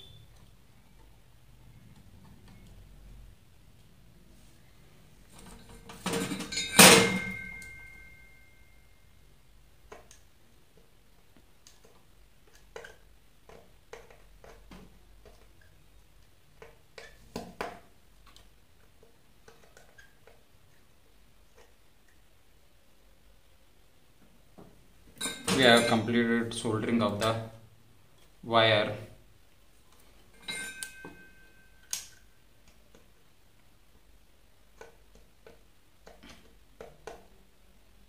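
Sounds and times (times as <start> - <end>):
metal tools clinking on workbench: 5.4 - 8.2, 25.2 - 26.1, 30.4 - 32.0.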